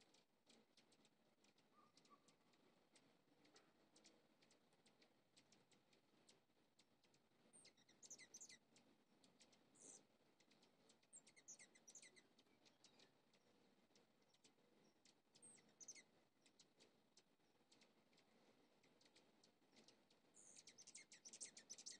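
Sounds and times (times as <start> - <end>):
hummingbird high chattering: 7.6 - 8.6, 11.1 - 13.1, 15.4 - 16.6, 20.4 - 21.9.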